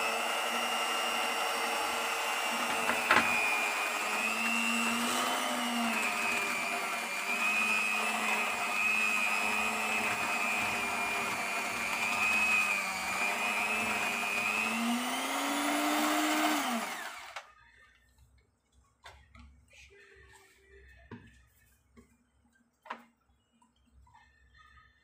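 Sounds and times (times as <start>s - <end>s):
electric hand mixer whisking batter: 0.0s - 17.5s.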